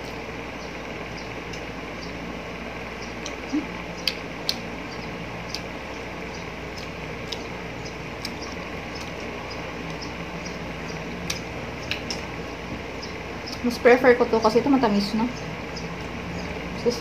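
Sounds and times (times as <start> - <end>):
low background hum: 0.0 - 17.0
person chewing with lip smacks: 3.2 - 4.6, 5.5 - 5.7.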